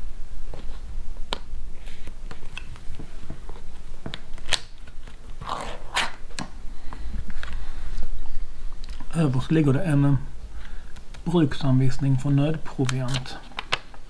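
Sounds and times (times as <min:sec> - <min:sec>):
scraping tear of tin lid: 0:05.4 - 0:06.2.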